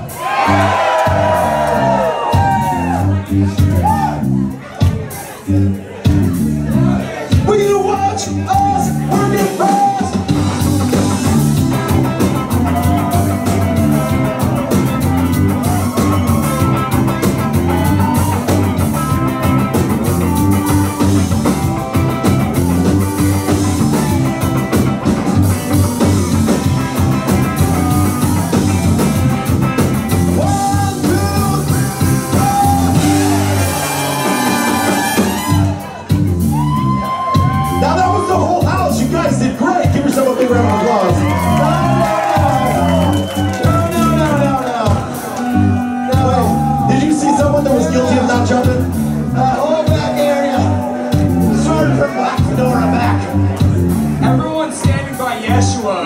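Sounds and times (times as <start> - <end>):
live ska band playing: 0.0 - 56.0
saxophone: 32.4 - 36.0
trumpet: 33.0 - 36.0.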